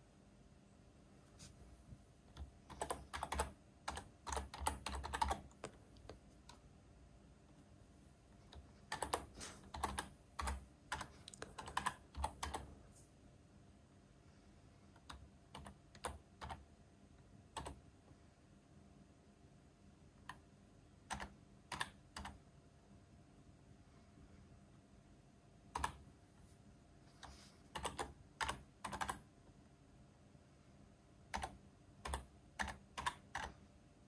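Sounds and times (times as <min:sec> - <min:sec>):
typing on a computer keyboard: 0:02.3 - 0:06.6, 0:08.5 - 0:12.7, 0:15.0 - 0:16.6, 0:17.5 - 0:17.8, 0:21.0 - 0:22.4, 0:25.7 - 0:26.0, 0:27.2 - 0:29.3, 0:31.3 - 0:33.6.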